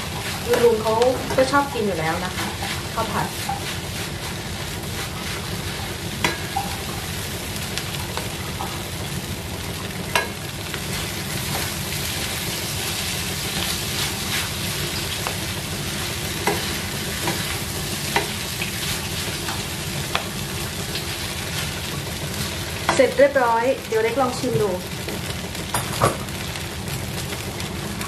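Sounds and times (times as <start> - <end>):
rice sizzling in a frying pan: 0.0 - 28.0
spatula tapping a pan: 2.6 - 3.8, 6.2 - 7.0, 10.1 - 10.4, 16.4 - 18.4.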